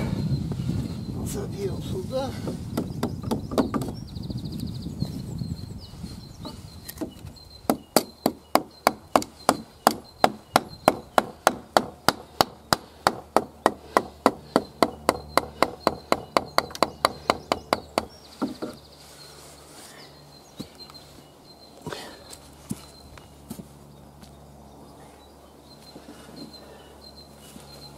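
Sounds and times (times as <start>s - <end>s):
hammer striking wooden wedge: 2.4s - 4.0s, 6.9s - 18.8s.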